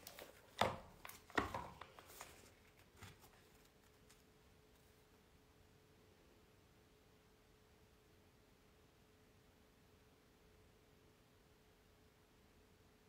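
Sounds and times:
pages handled: 0.0s - 4.9s
faint steady hum: 0.0s - 13.0s
book knocking on table: 0.6s - 1.9s.

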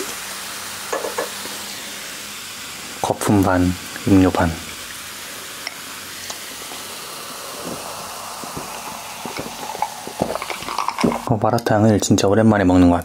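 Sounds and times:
cola fizzing in a glass: 2.9s - 11.4s.

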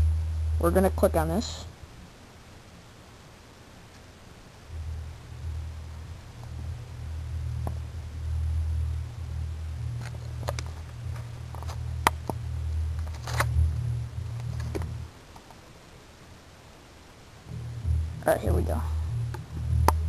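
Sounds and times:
camera handling rumble: 10.0s - 12.4s, 13.0s - 13.8s, 14.4s - 15.0s.

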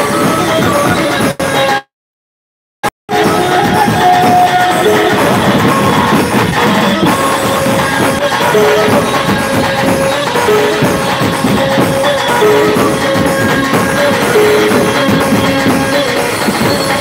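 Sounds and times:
hand drums beating: 3.1s - 17.0s
repeating held-note melody: 4.2s - 17.0s.

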